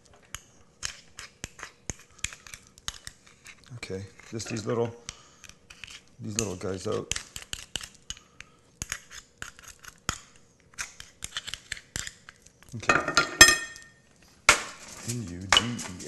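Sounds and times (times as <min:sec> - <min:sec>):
knife scraping clam shells: 0:00.1 - 0:12.6.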